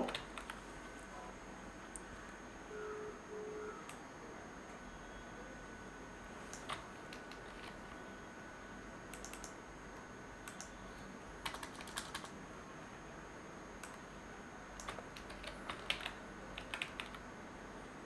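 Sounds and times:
computer keyboard typing: 0:00.0 - 0:00.6, 0:06.5 - 0:08.0, 0:09.1 - 0:09.6, 0:10.4 - 0:10.8, 0:11.4 - 0:12.4, 0:14.8 - 0:17.2.

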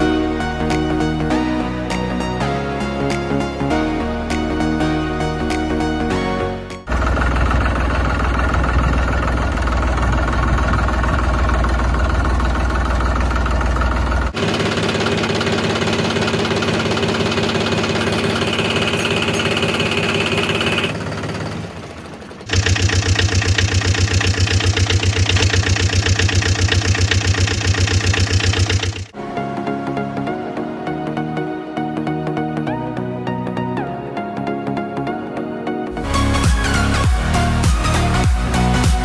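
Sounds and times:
tractor engine running: 0:06.9 - 0:29.2.

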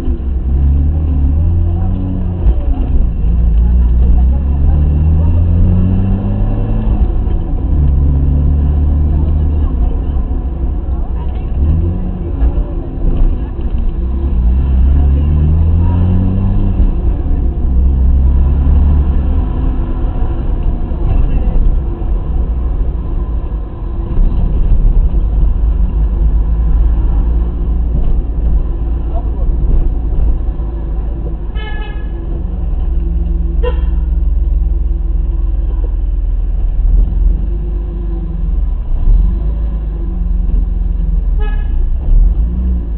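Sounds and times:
car engine droning: 0:00.0 - 0:42.9
car horn toot: 0:31.5 - 0:32.2, 0:33.6 - 0:34.1, 0:41.4 - 0:41.8.

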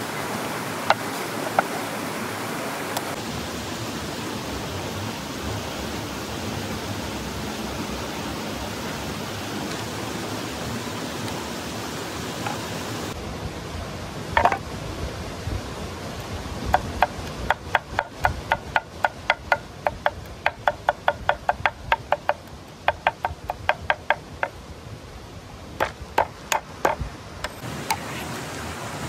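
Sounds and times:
cleaver chopping on wooden board: 0:16.7 - 0:24.5, 0:25.8 - 0:28.0.

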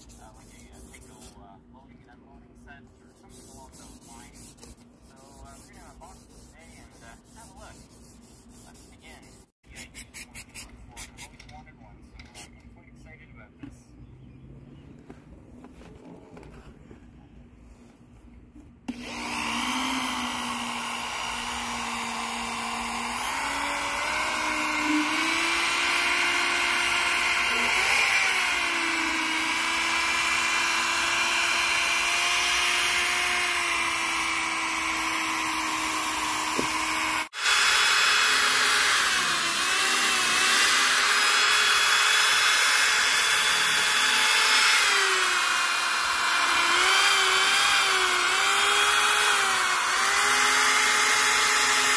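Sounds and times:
electric drill whining: 0:18.9 - 0:51.9.

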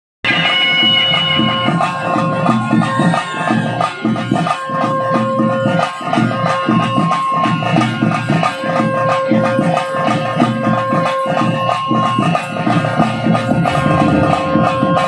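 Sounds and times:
wind instrument long note: 0:13.7 - 0:15.0.

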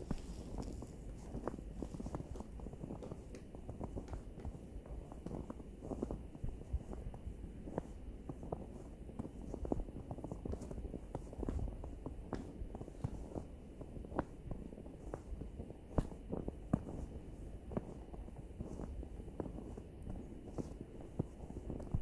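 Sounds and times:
footsteps crunching through snow: 0:00.0 - 0:06.2.

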